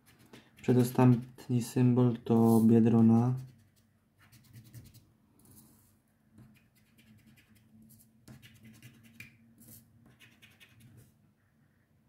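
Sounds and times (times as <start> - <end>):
faint scratching of a card: 2.4 - 11.1.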